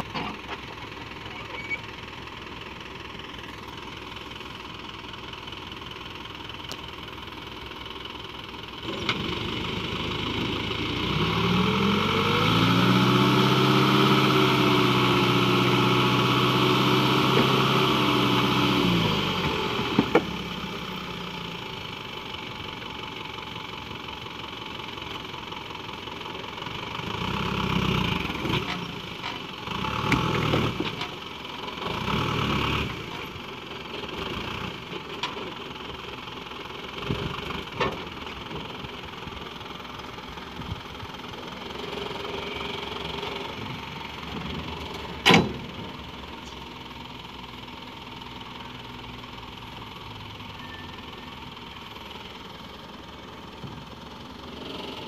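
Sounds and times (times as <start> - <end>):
truck engine revving and idling: 0.0 - 55.0.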